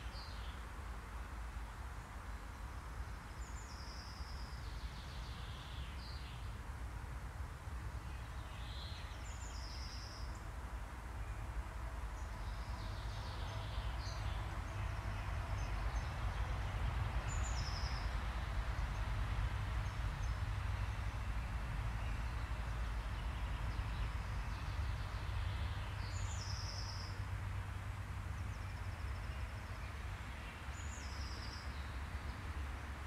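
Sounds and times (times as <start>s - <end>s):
bird singing high song phrase: 22.0s - 27.2s.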